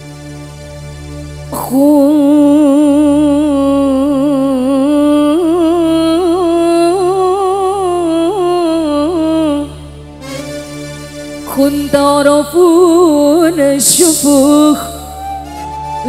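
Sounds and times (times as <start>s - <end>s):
woman singing through pa: 1.6s - 9.7s, 11.5s - 15.5s.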